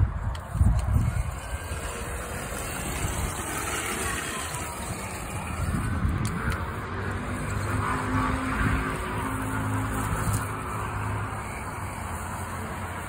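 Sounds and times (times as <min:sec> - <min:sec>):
electric motor and gears whining: 0:00.0 - 0:13.0.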